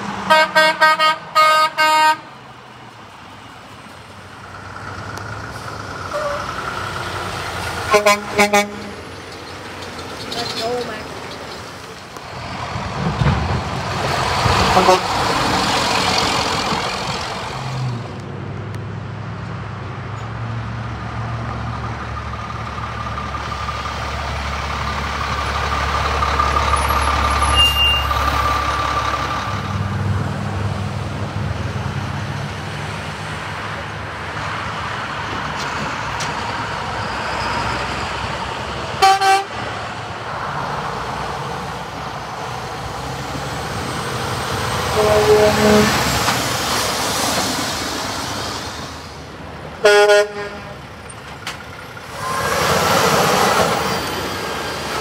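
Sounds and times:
diesel trucks driving past: 0:00.0 - 0:55.0
short horn toot: 0:27.5 - 0:28.2, 0:44.9 - 0:46.1.

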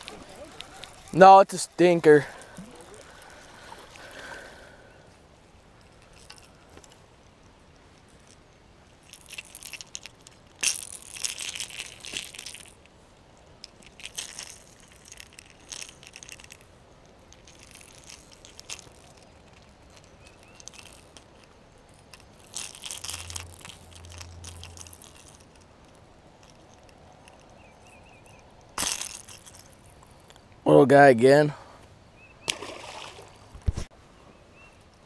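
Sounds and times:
rustling crinkling handling noise: 0:00.0 - 0:04.1.

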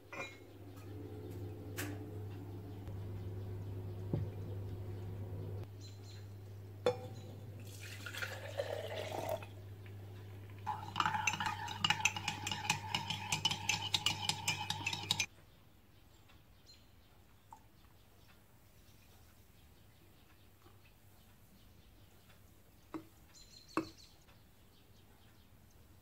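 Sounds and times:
low hum: 0:00.3 - 0:07.7
coffee pouring into mug: 0:06.8 - 0:15.3
teaspoon clinking in mug: 0:10.6 - 0:15.3.

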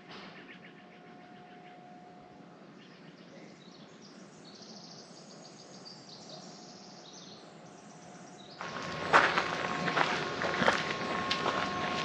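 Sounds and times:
small birds chirping: 0:02.7 - 0:09.9.

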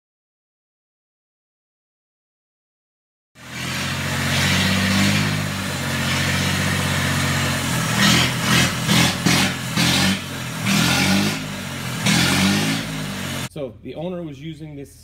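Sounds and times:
diesel tractor engine running: 0:03.4 - 0:13.5.

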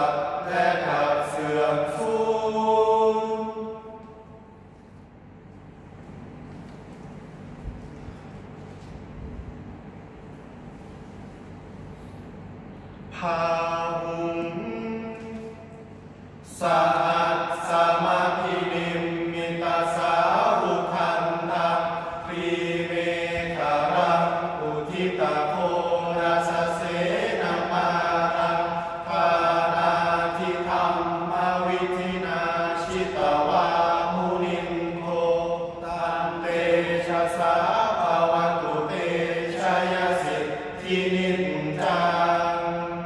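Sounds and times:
men chanting in unison: 0:00.0 - 0:04.0, 0:16.5 - 0:43.0.

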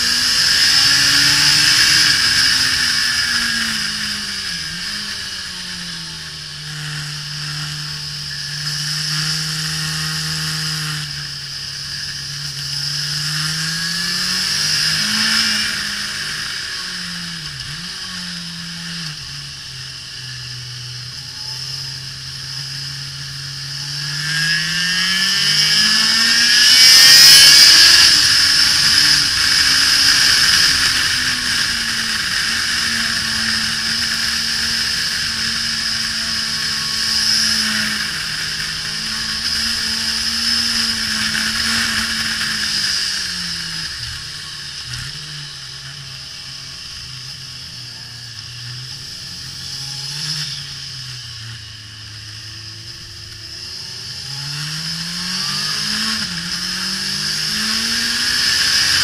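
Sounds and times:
motorcycle engine on track: 0:00.0 - 0:59.0.

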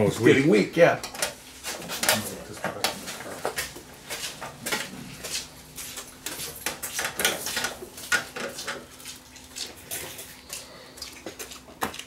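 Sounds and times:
metal and connectors clicking and rattling: 0:01.0 - 0:04.9.

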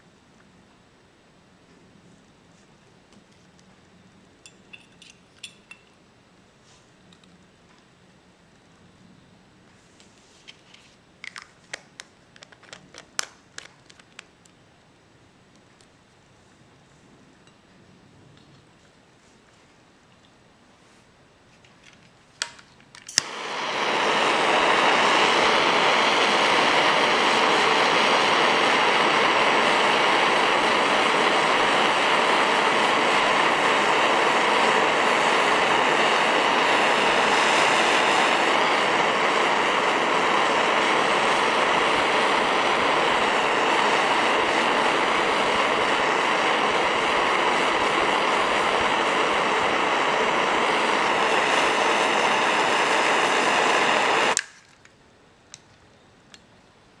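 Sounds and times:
torch igniter clicks: 0:11.2 - 0:14.6, 0:21.8 - 0:56.5
butane torch hissing: 0:23.1 - 0:54.5.

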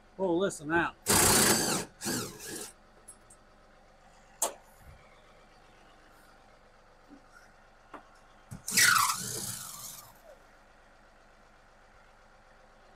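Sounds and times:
cordless drill running: 0:01.1 - 0:02.7, 0:08.7 - 0:10.1.

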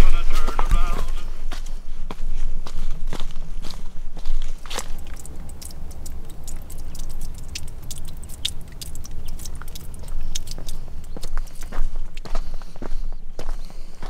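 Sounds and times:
footsteps on stony trail: 0:00.0 - 0:14.0
steady low rumble: 0:00.0 - 0:14.0.

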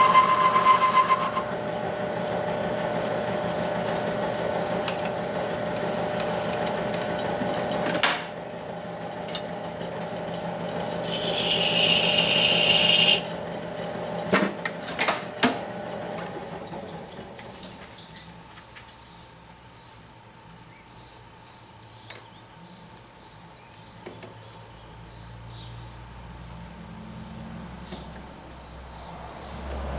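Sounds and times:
lathe humming: 0:00.0 - 0:07.9, 0:09.9 - 0:14.3.

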